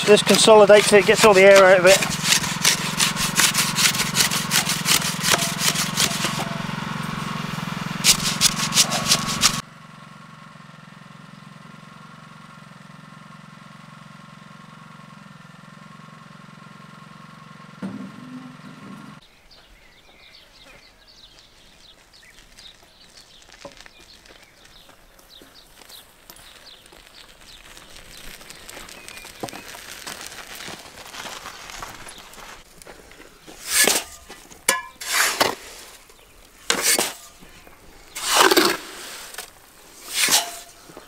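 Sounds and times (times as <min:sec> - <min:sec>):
concrete scraping strokes: 0:00.0 - 0:09.6, 0:27.4 - 0:41.0
motor hum: 0:00.0 - 0:20.4, 0:21.1 - 0:41.0
outdoor background: 0:00.0 - 0:41.0.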